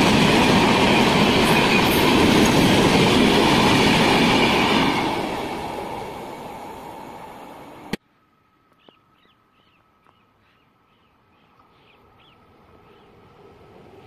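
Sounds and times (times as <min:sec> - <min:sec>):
approaching train rumble: 0:00.0 - 0:08.0, 0:11.1 - 0:14.0
train rumbling: 0:00.0 - 0:08.0, 0:11.6 - 0:14.0
bird chirping: 0:08.7 - 0:13.2.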